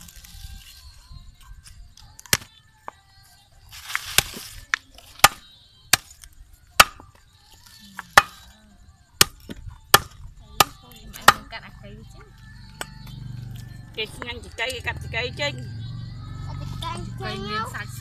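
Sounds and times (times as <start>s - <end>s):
cleaver chopping fish on wood: 5.2s - 6.2s, 6.8s - 7.2s, 8.1s - 8.4s, 9.2s - 11.5s.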